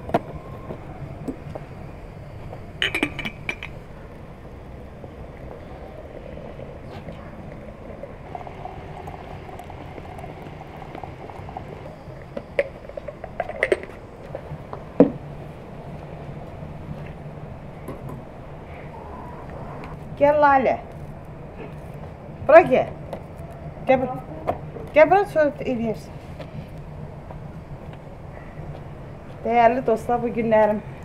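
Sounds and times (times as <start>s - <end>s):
china teapot lid clinks: 2.8s - 3.8s
hot water pouring into teapot: 7.4s - 13.9s.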